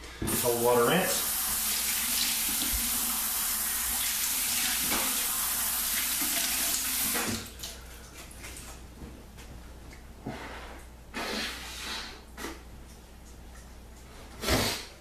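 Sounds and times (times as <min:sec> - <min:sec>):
water running from a sink tap: 0:00.3 - 0:07.6.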